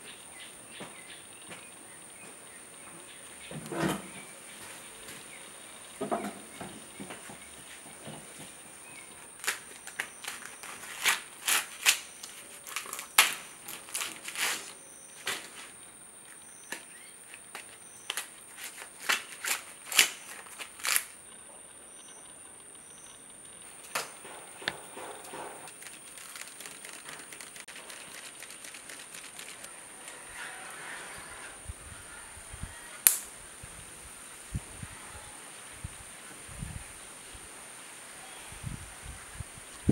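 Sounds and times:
maize husks ripping: 9.4 - 15.5, 16.7 - 21.2, 25.7 - 30.7.

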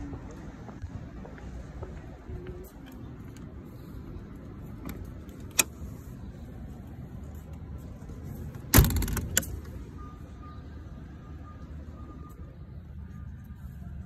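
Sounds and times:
metal door thump and rattle: 8.7 - 9.5
latch click: 8.7 - 9.6.

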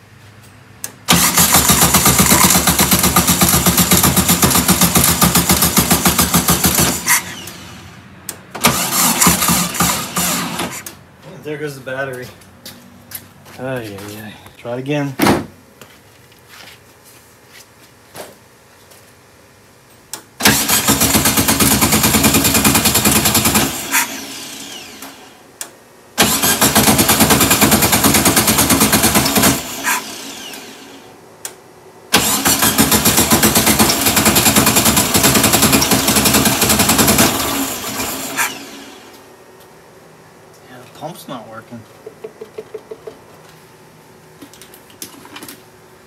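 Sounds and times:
car engine cranking: 0.8 - 10.9, 20.4 - 23.8, 26.2 - 30.0, 32.1 - 38.7.

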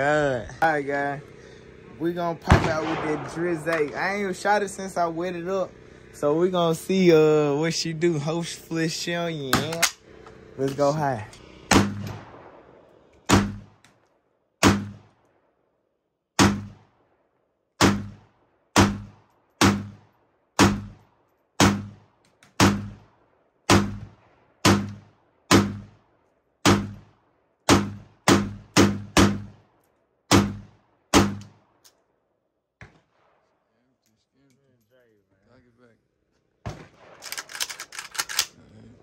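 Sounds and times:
semi-automatic gunshots: 2.4 - 4.6, 11.7 - 13.8, 14.6 - 15.2, 16.4 - 17.0, 17.8 - 21.0, 21.6 - 26.0, 26.6 - 27.1, 27.7 - 29.7, 30.3 - 31.8, 36.6 - 38.4.

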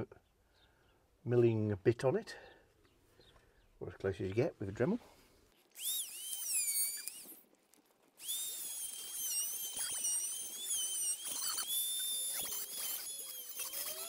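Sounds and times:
rotary tool whining: 5.8 - 7.5, 8.2 - 14.0.

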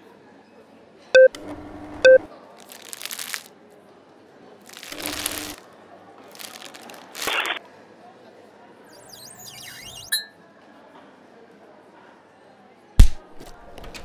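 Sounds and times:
paper rustling and crinkling: 2.6 - 3.5, 4.7 - 5.6, 6.3 - 7.6.

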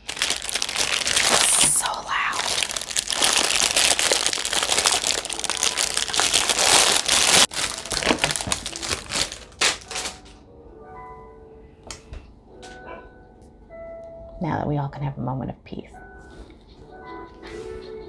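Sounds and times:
plastic wrap crinkling and tearing: 0.0 - 10.3.

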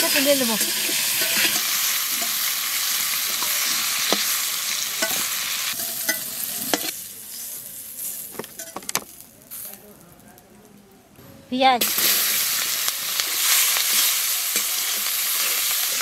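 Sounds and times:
vegetables sizzling in oil: 0.0 - 9.8, 11.8 - 16.0
metal spatula scraping a wok: 0.1 - 8.8, 13.2 - 16.0.

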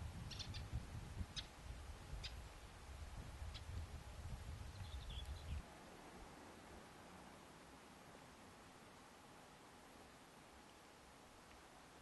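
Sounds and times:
wind rumble on microphone: 0.0 - 5.7
small birds chirping: 0.2 - 2.5, 3.4 - 3.8, 4.6 - 5.6.

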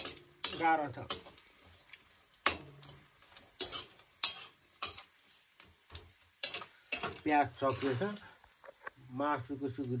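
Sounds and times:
metal spatula scraping frying pan: 0.0 - 1.8, 2.4 - 8.4
faint sizzle: 0.0 - 10.0.

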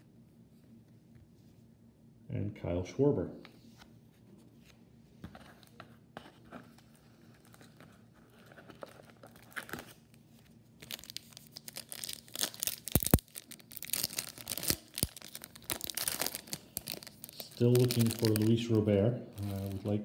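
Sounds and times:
foil wrapper crinkling and tearing: 9.1 - 10.1, 10.8 - 20.0.

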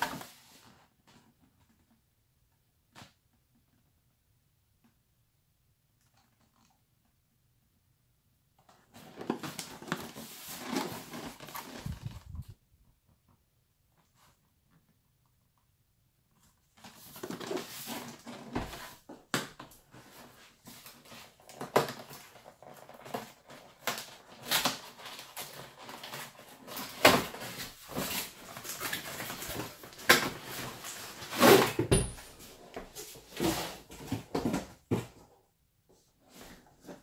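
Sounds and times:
cardboard rustling: 8.6 - 12.5, 16.4 - 35.3.

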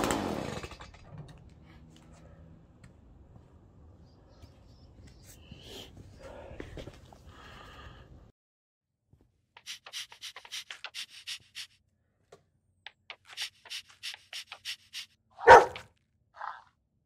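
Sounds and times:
dog barking: 15.4 - 16.6.

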